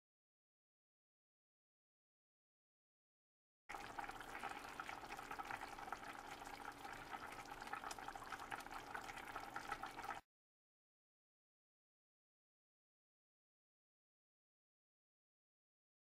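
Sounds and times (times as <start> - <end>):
sauce bubbling in a pot: 3.7 - 10.2.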